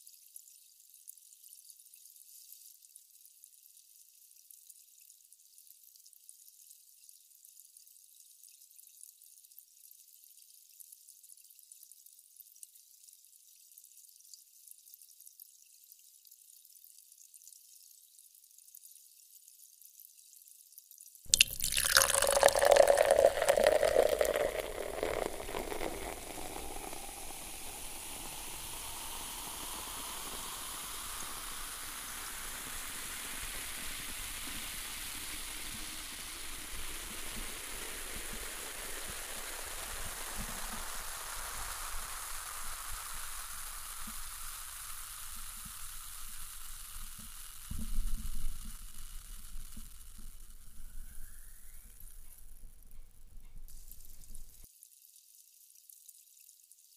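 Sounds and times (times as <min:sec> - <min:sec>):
beer pouring into a glass: 0:21.3 - 0:52.1
beer foam fizzing: 0:21.3 - 0:52.6.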